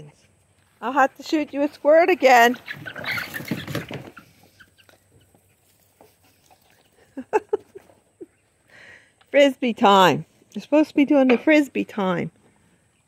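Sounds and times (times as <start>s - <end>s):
chickens clucking: 1.2s - 8.7s.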